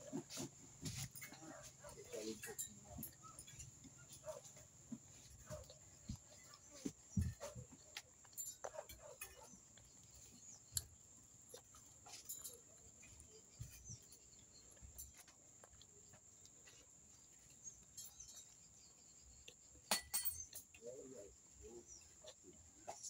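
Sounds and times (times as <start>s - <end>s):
eating clicks and clinks: 1.1s - 4.6s, 7.3s - 21.1s.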